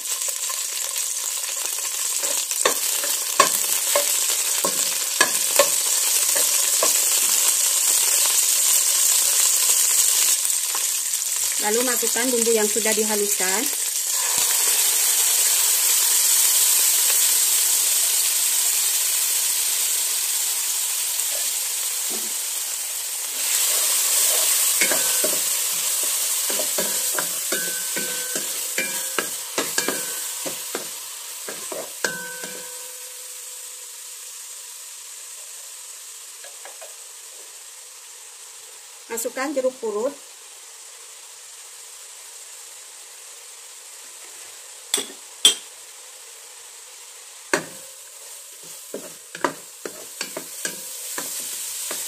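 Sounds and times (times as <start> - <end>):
spice paste sizzling in oil: 0.0 - 52.0.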